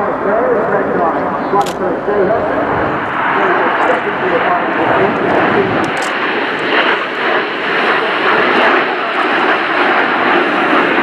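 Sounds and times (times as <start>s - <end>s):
jets flying past: 0.7s - 11.0s.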